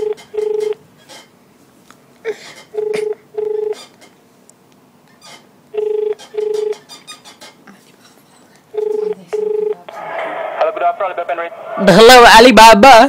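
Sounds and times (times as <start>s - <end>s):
telephone ringback tone: 0.0s - 0.8s, 2.8s - 3.8s, 5.8s - 6.8s, 8.8s - 9.8s.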